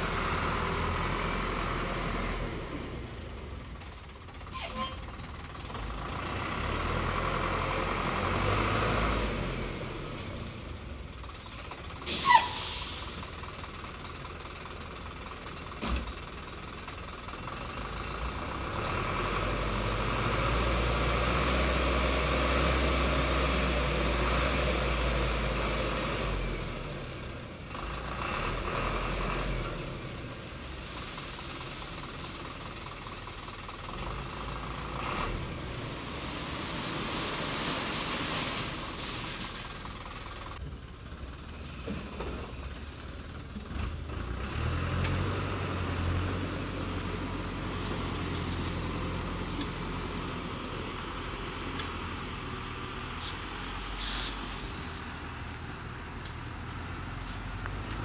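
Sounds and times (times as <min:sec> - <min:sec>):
diesel truck engine running: 0:00.0 - 0:58.0
sharp hiss: 0:12.0 - 0:13.2, 0:53.1 - 0:55.4.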